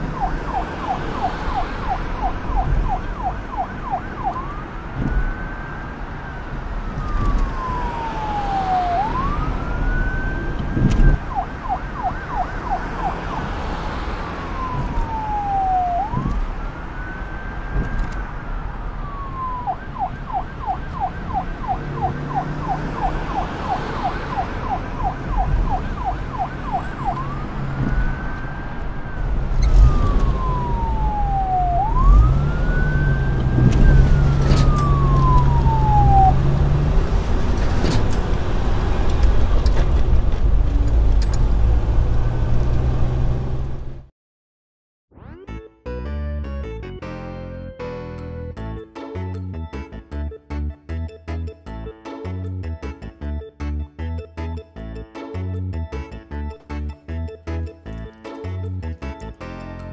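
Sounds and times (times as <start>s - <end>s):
police siren wail and yelp: 0.0s - 38.2s.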